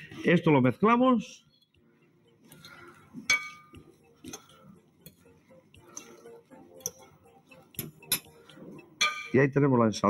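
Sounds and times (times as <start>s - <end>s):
metal utensils clinking on ceramic bowl: 2.6s - 4.6s, 7.8s - 8.4s.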